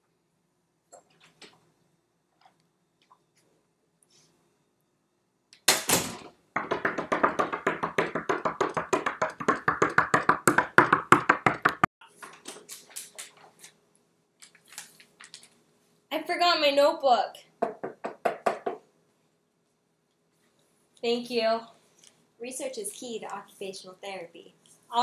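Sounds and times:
rapid knocking on door: 6.6s - 11.9s, 17.6s - 18.8s.

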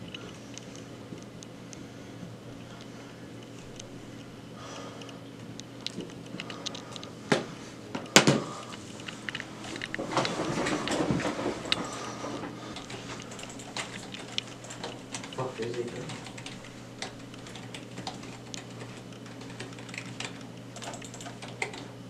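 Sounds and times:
rustling: 8.7s - 19.5s
handling clicks: 12.8s - 21.8s.

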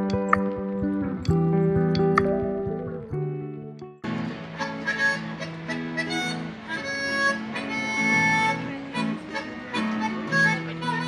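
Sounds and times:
strummed acoustic guitar: 4.0s - 11.0s
harmonica playing a tune: 4.3s - 11.0s.

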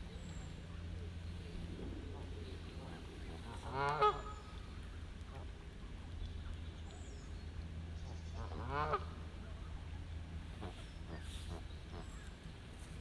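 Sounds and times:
low rumble: 0.0s - 13.0s
geese honking: 2.9s - 4.5s, 8.4s - 9.2s.

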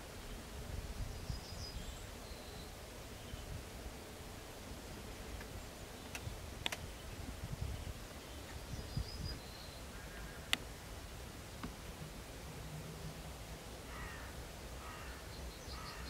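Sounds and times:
sharp clicks: 6.1s - 6.8s.

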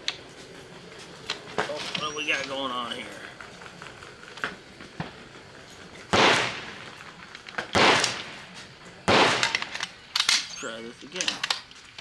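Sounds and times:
gunshots with echo: 6.1s - 6.8s, 7.7s - 8.5s, 9.1s - 9.6s.

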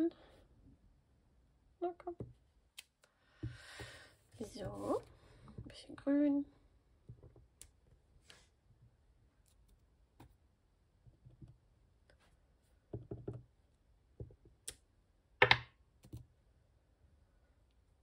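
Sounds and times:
stamp blocks clicking and knocking: 15.4s - 15.8s.

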